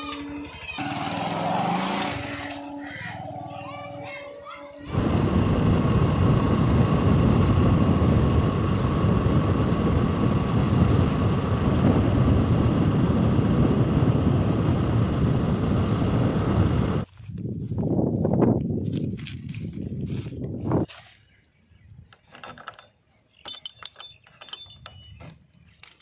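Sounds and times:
motorcycle engine running: 0.8 - 4.0, 4.9 - 17.1
faint steady whine: 3.6 - 17.1
wind noise on microphone: 4.9 - 21.0.

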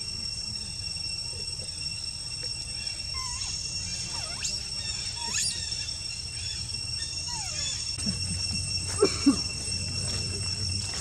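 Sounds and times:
high insect drone: 0.0 - 11.0
monkey squeals: 2.7 - 8.9.

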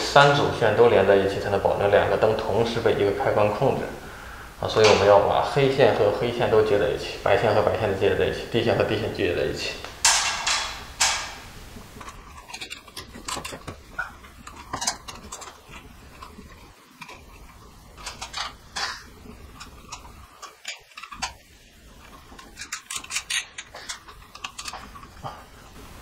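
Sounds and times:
wires rustling: 0.0 - 26.0
wire connectors clicking: 9.8 - 25.8.

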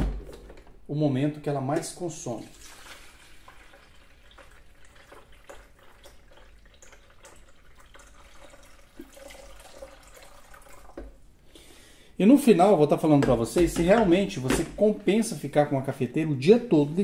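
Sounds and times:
water trickling into reservoir: 2.3 - 11.2.

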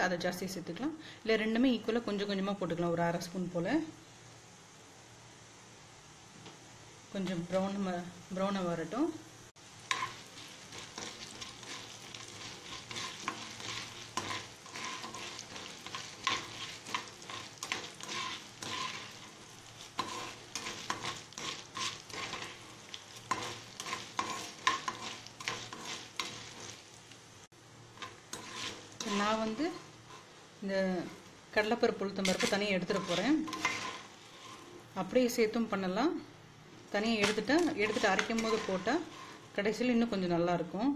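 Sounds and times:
lentils sizzling in hot oil: 0.0 - 40.9
metal ladle scraping pan: 9.8 - 26.8, 27.9 - 30.4, 32.1 - 34.9, 37.1 - 39.5.

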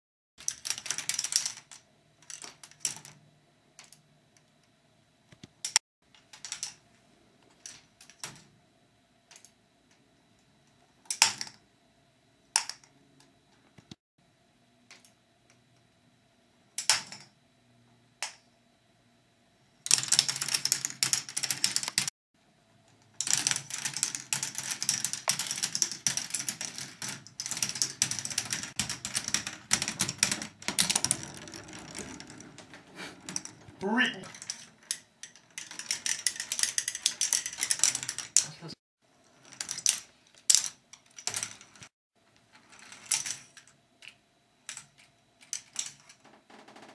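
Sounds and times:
plastic balls rattling along track: 0.4 - 3.2, 19.9 - 22.1, 23.2 - 41.9.

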